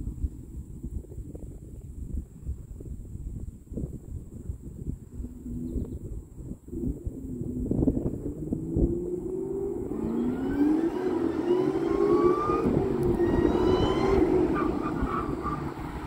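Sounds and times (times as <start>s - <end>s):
car engine revving: 6.8s - 16.0s.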